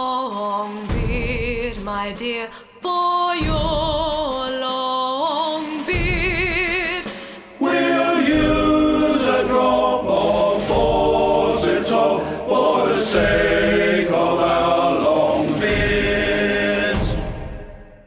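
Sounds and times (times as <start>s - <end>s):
male voice choir singing: 7.6s - 17.8s.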